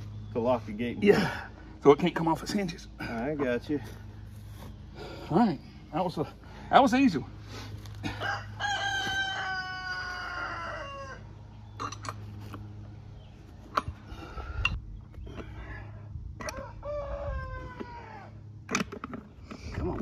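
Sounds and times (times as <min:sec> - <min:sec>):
rooster crowing: 0:08.0 - 0:11.4, 0:16.4 - 0:18.4.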